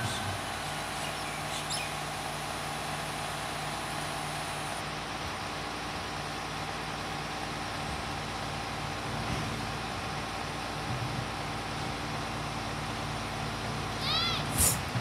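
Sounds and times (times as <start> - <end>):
diesel engine idling: 0.0 - 15.0
bird chirping: 0.9 - 2.0.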